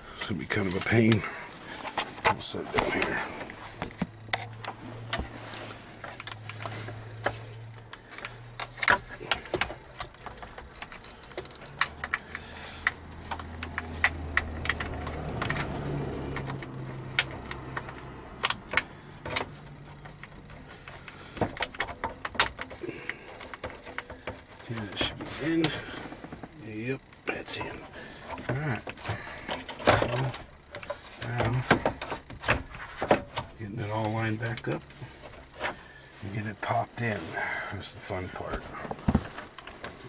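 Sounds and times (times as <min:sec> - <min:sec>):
plastic connectors clicking and rattling: 0:06.0 - 0:33.5.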